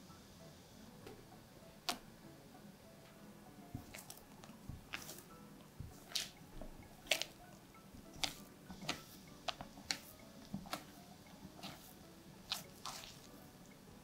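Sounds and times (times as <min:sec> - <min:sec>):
spatula squelching and scraping glass: 0:11.5 - 0:13.3.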